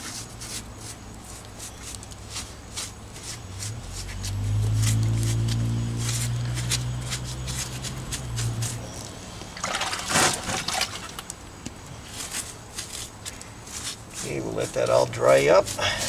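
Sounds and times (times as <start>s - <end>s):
sponge scratching on stone: 0.0s - 9.0s, 12.1s - 16.0s
sponge sloshing in water bucket: 9.6s - 11.3s.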